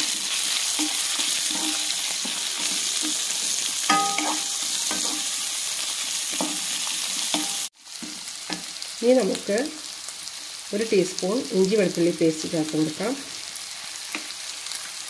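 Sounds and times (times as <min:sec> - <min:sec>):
wooden spatula scraping a pan: 0:00.0 - 0:05.4
vegetables sizzling in a pan: 0:00.0 - 0:15.0.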